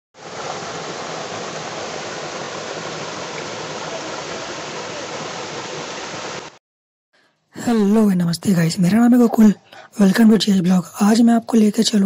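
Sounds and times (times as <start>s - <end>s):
water rushing over rocks: 0.2s - 6.6s.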